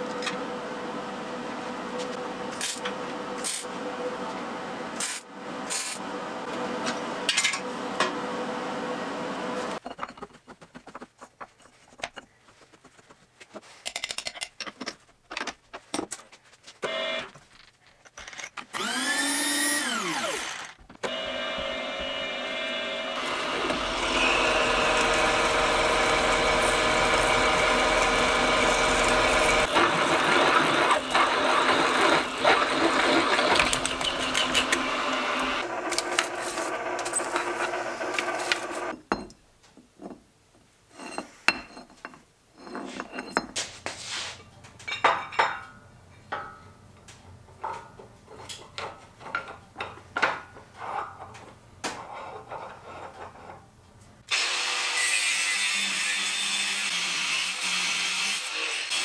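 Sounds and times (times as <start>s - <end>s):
drill motor and gearing: 16.8s - 17.3s, 18.7s - 38.9s
drill scraping through steel: 18.7s - 38.9s.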